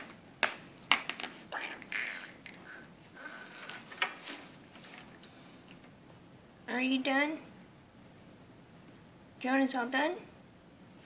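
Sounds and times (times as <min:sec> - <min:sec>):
soft mouth noises: 0:01.5 - 0:04.2.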